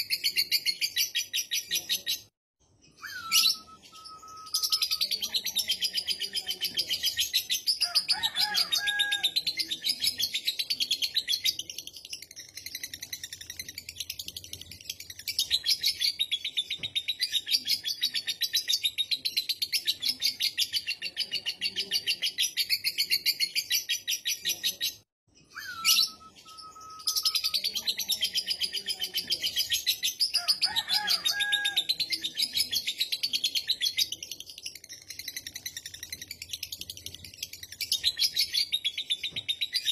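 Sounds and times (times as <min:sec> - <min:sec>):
short whistle: 0:25.5 - 0:27.1.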